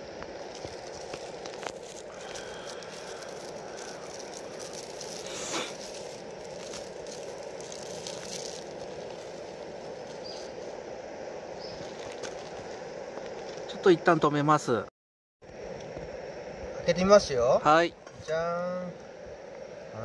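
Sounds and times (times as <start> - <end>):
gas burner rushing: 0.0 - 13.7.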